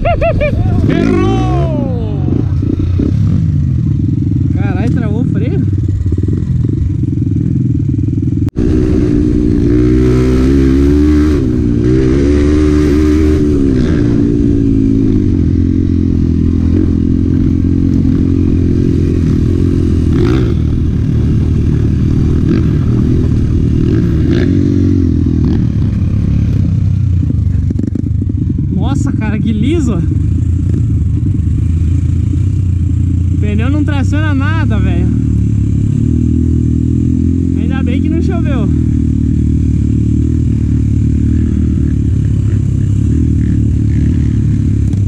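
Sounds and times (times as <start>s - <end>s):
motorcycle engine revving: 0.0s - 45.0s.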